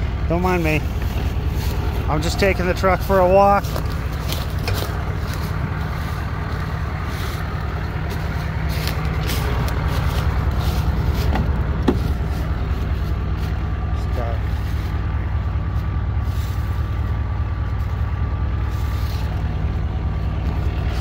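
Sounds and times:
diesel truck engine idling: 0:00.0 - 0:21.0
footsteps on leaves: 0:00.6 - 0:21.0.

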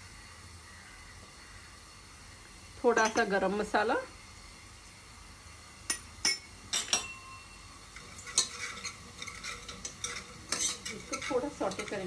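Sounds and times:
steel bowls and spoon clinking: 0:05.9 - 0:12.0.

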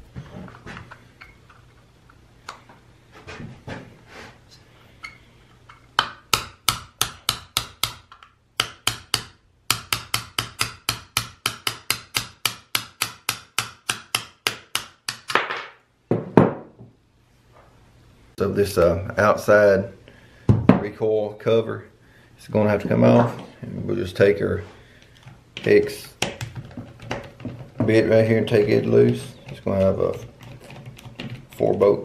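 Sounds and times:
hammer tapping a punch: 0:06.0 - 0:15.4.

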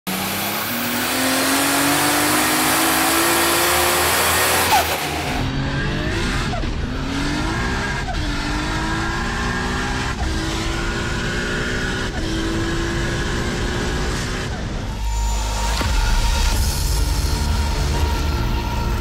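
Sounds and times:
car engine accelerating through gears: 0:00.1 - 0:15.9.

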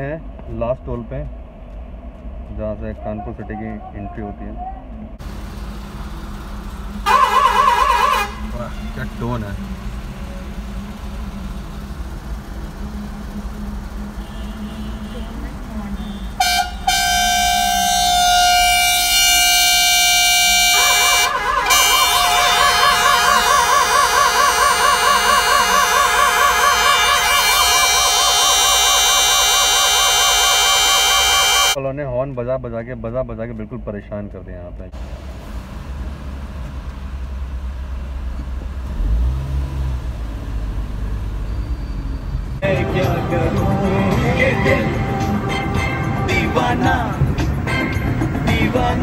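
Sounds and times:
car engine and road rumble: 0:00.0 - 0:49.0
warbling horn: 0:07.0 - 0:09.0, 0:14.2 - 0:31.8, 0:42.6 - 0:48.0
truck air horn blast: 0:07.0 - 0:09.2, 0:14.1 - 0:31.8.

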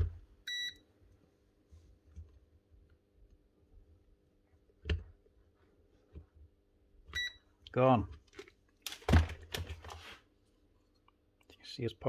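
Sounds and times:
multimeter beep: 0:00.5 - 0:00.8, 0:07.1 - 0:07.4.

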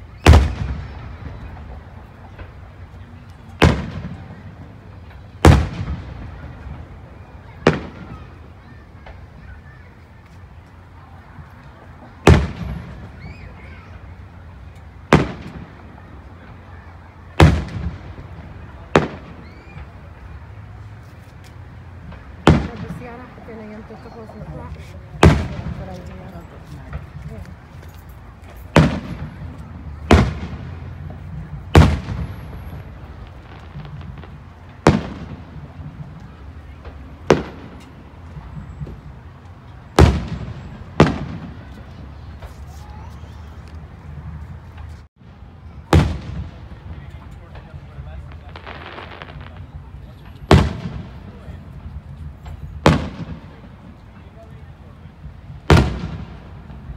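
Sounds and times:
rolling echo: 0:00.0 - 0:21.1, 0:21.9 - 0:42.5, 0:45.2 - 0:56.9
firework shells booming: 0:00.2 - 0:02.7, 0:03.5 - 0:06.9, 0:12.2 - 0:13.4, 0:15.1 - 0:16.0, 0:17.3 - 0:20.1, 0:25.1 - 0:26.3, 0:28.6 - 0:39.1, 0:39.9 - 0:41.8, 0:45.8 - 0:51.6, 0:52.2 - 0:54.0, 0:55.5 - 0:56.9.

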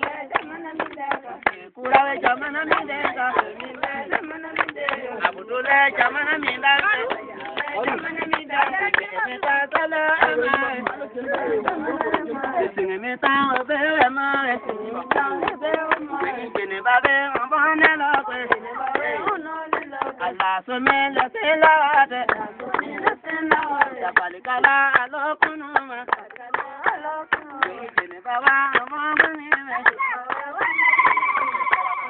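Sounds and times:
rhythmic hand-clapping: 0:00.0 - 0:32.0
voices singing: 0:00.0 - 0:32.0.

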